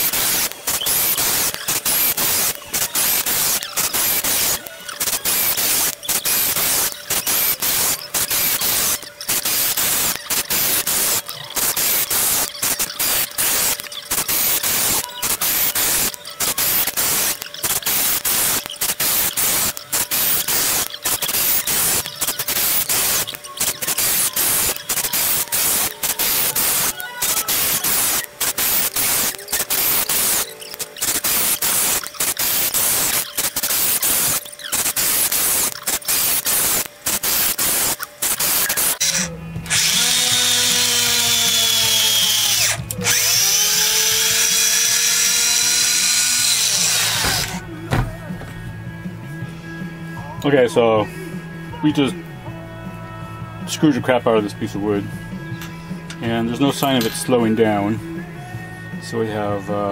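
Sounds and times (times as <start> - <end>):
cordless drill driving screw: 0.0 - 47.6.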